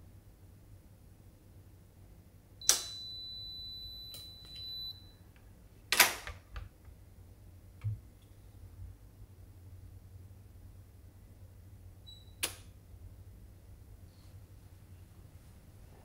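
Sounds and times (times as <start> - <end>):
lock click: 2.6 - 3.0, 5.9 - 6.4.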